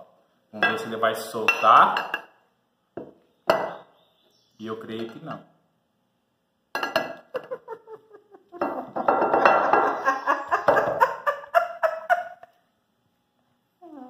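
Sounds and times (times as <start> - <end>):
bowl knocking against ceramic plate: 6.8 - 7.2, 8.6 - 10.0.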